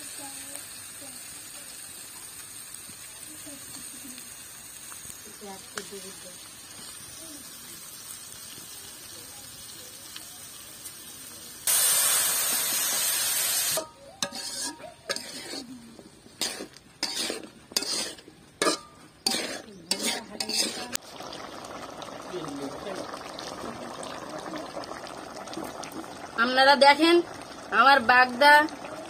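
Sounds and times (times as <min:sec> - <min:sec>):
loud sizzle of food hitting oil: 0:00.0 - 0:15.4, 0:16.2 - 0:29.0
hot oil sizzling: 0:00.0 - 0:29.0
metal spatula scraping a wok: 0:13.6 - 0:21.0.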